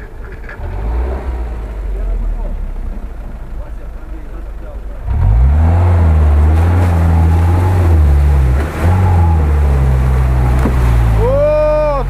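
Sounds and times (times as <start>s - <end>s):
engine revving hard: 0.6s - 2.0s, 5.0s - 11.4s
water splashing: 4.6s - 12.0s
person shouting: 11.1s - 12.0s.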